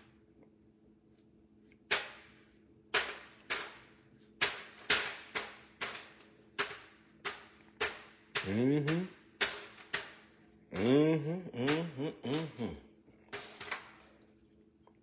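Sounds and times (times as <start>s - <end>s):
sharp taps into foil pan: 2.9s - 10.3s
person humming: 8.4s - 9.2s, 10.7s - 12.9s.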